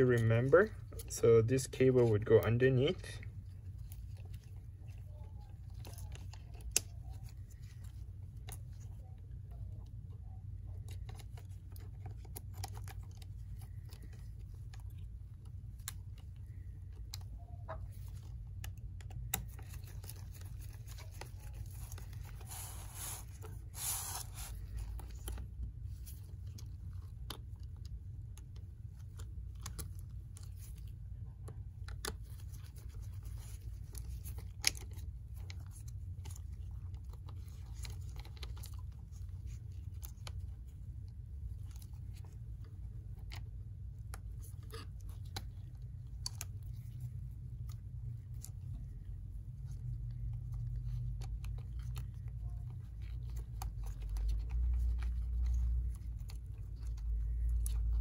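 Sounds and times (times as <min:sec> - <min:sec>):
steady low hum: 0:00.0 - 0:58.0
scratchy rustle: 0:19.1 - 0:27.4.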